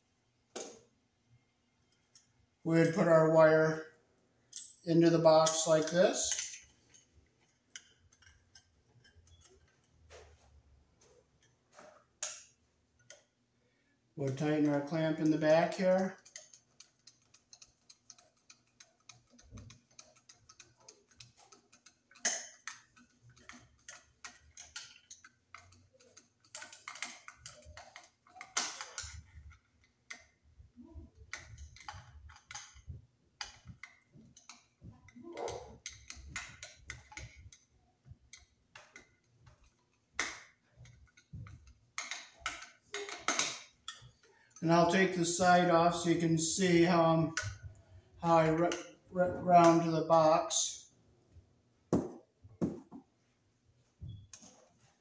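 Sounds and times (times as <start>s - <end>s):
screwdriver clicking on metal: 14.2s - 30.4s, 31.2s - 34.7s, 35.8s - 37.7s.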